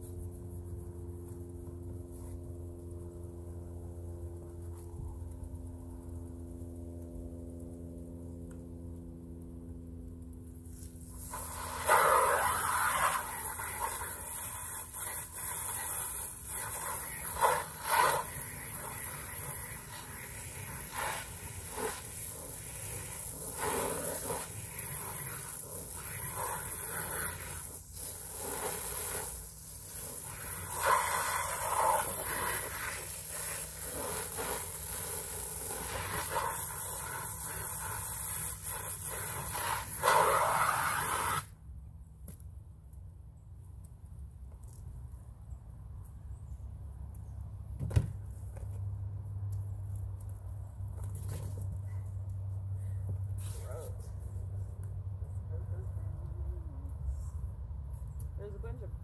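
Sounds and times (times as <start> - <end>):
low hum: 0.0 - 30.8
hose spray hissing on fabric: 10.5 - 41.6.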